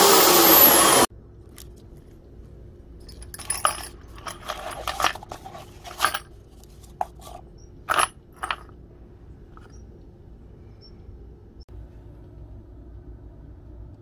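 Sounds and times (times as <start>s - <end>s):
drill bits clattering on wood: 3.1s - 6.3s, 7.0s - 8.7s.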